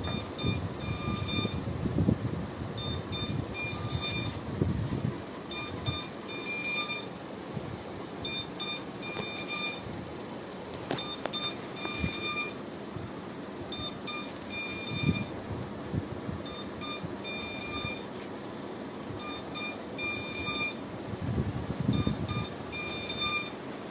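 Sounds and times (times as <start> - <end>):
high-pitched buzzer beeps: 0.0 - 1.7, 2.8 - 4.4, 5.5 - 7.3, 8.2 - 9.9, 10.9 - 12.6, 13.7 - 15.4, 16.4 - 18.1, 19.2 - 20.8, 21.9 - 23.6.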